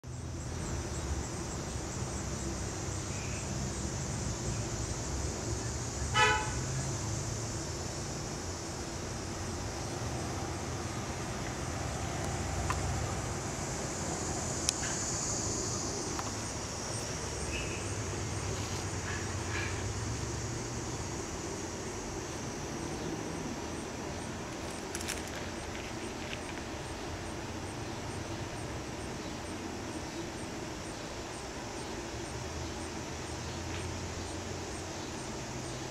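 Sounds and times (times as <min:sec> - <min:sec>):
outdoor background rumble: 0:00.0 - 0:35.9
car horn toot: 0:06.1 - 0:06.7.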